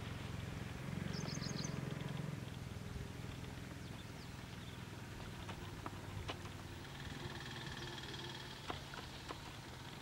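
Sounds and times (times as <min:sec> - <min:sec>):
distant motor humming: 0:00.0 - 0:10.0
high bird chirps: 0:01.1 - 0:01.8.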